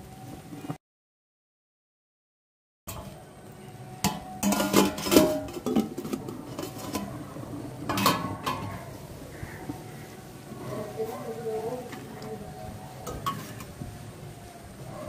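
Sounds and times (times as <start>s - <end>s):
metal lid clanking: 4.0s - 8.9s, 13.0s - 13.8s
metal skimmer scraping in pot: 4.0s - 8.9s, 13.0s - 13.8s.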